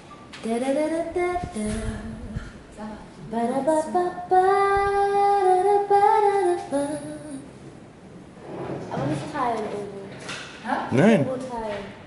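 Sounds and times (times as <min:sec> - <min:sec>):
woman singing unaccompanied: 0:00.4 - 0:07.5.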